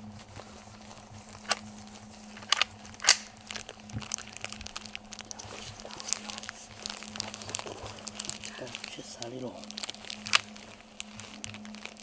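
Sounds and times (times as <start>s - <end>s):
crackling and rustling forest litter: 0.0s - 12.0s
sharp snaps: 2.4s - 3.4s.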